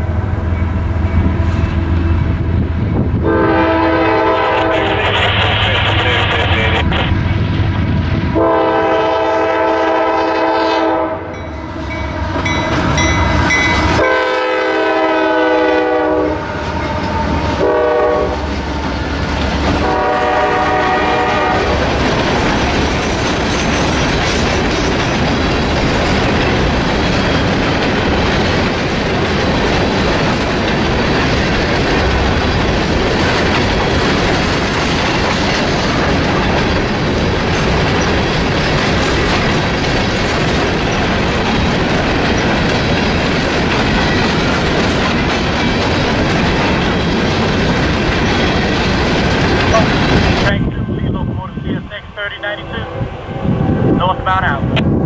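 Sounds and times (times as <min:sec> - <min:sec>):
train rumbling past: 0:00.0 - 0:55.0
locomotive horn blowing: 0:03.2 - 0:05.0, 0:08.4 - 0:18.5, 0:19.8 - 0:21.8, 0:51.8 - 0:54.2
wheels clacking over rail joints: 0:21.8 - 0:50.5.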